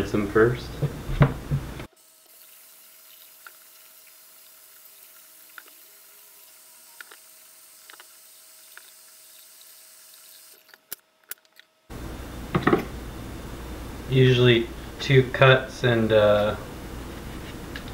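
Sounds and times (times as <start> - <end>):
faint background hum: 0.0 - 17.9.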